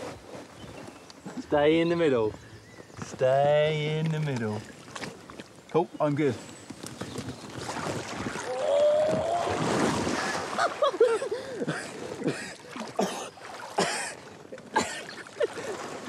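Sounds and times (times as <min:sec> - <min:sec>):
splashing in water: 0:04.0 - 0:05.8, 0:06.8 - 0:16.0
big splash in water: 0:07.6 - 0:10.8
man crying out: 0:08.5 - 0:09.6.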